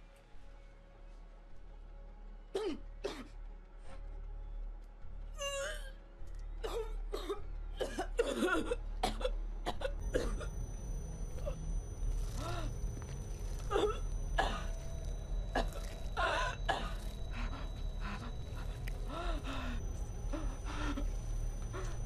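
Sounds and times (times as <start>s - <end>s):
woman coughing and choking: 6.6s - 10.5s.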